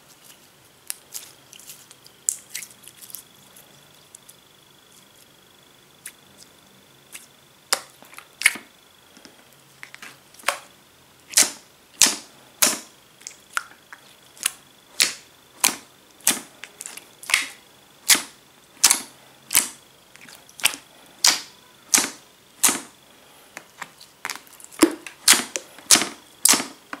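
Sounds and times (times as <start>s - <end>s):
slime popping and clicking: 17.3s - 19.8s.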